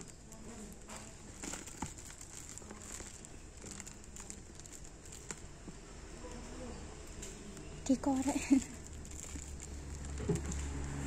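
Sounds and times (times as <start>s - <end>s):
plastic sack crinkling: 0.0s - 6.4s, 7.1s - 11.0s.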